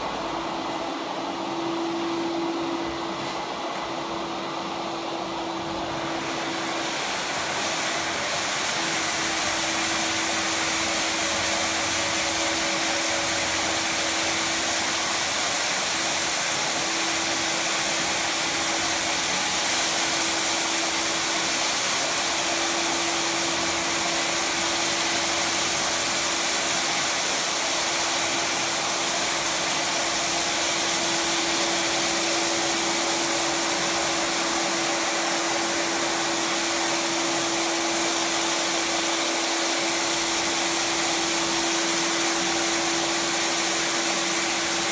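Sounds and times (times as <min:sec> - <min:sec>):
floor sanding machine humming: 0:00.0 - 0:44.9.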